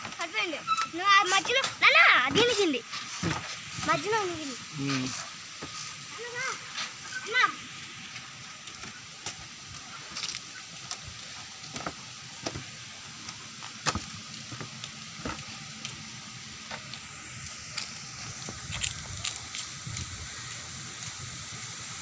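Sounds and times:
steady outdoor hiss: 0.0s - 22.0s
sandal footsteps on concrete: 13.3s - 15.5s.

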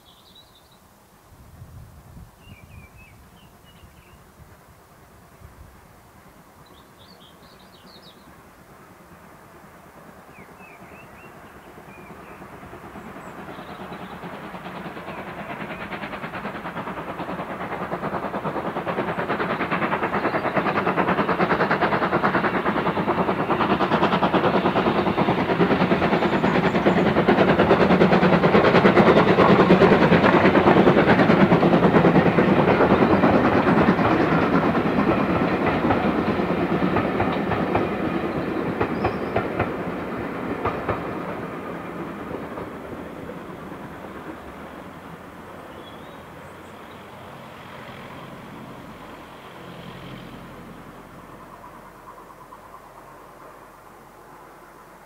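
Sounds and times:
steam locomotive exhaust: 1.1s - 55.0s
wheels clicking over rail joints: 12.9s - 53.6s.

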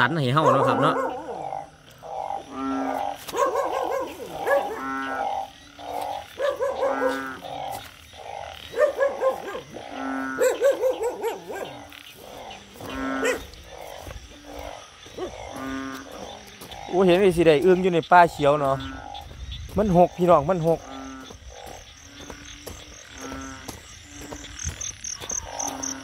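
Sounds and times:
frogs calling: 0.0s - 26.0s.

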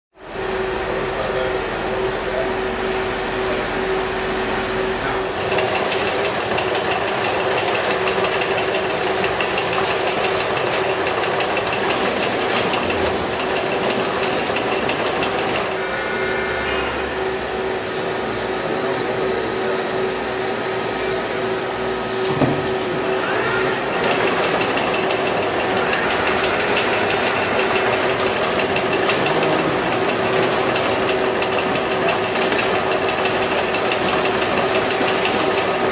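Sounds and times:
machinery humming: 0.2s - 35.9s
short rising whine: 2.7s - 5.5s, 15.3s - 24.0s.

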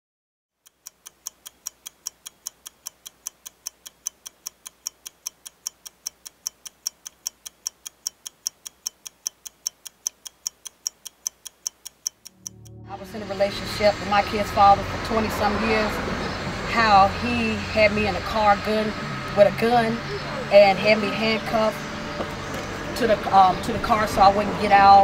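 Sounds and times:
clock ticking: 0.6s - 15.2s.

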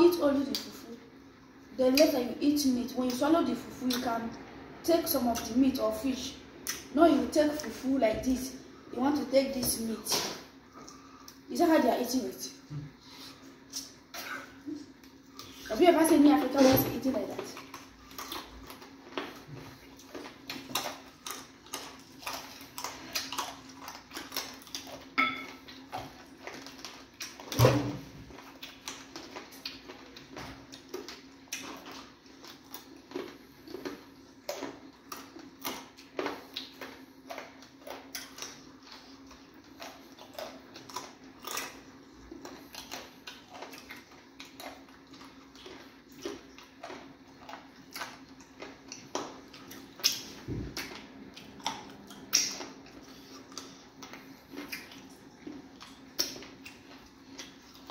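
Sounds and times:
chewing smacks and clicks: 17.4s - 27.6s, 28.3s - 57.9s.

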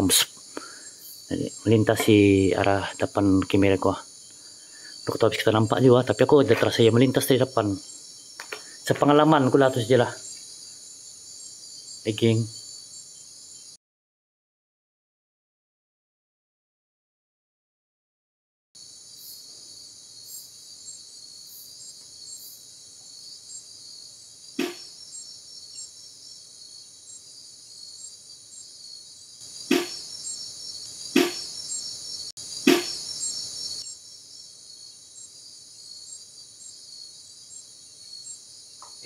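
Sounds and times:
night insects chirring: 0.0s - 13.8s, 18.8s - 39.0s
sharp knocks: 24.6s - 24.9s, 29.7s - 30.1s, 31.2s - 31.5s, 32.7s - 33.0s.

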